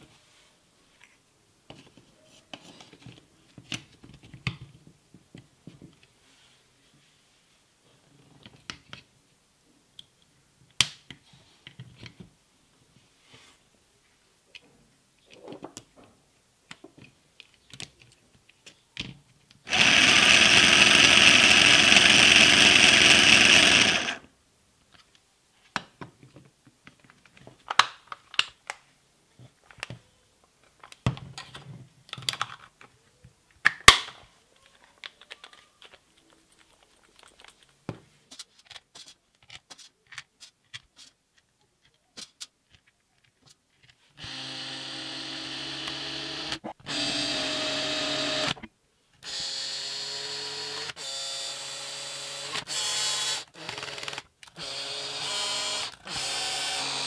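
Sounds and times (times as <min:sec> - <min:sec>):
cordless drill motor running: 0:19.7 - 0:24.2, 0:44.2 - 0:48.6, 0:49.2 - 0:57.0
plastic parts clicking and knocking: 0:24.9 - 0:28.8, 0:30.6 - 0:44.0.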